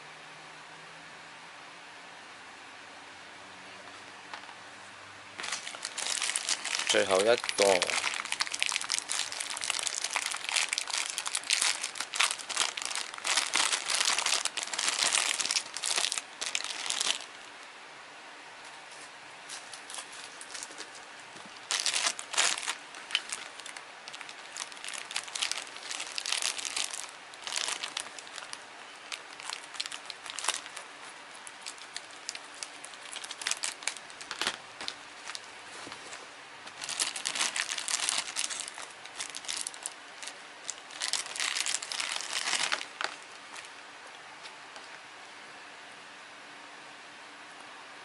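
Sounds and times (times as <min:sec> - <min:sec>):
plastic bag crinkling: 0:05.4 - 0:17.6, 0:19.5 - 0:43.8.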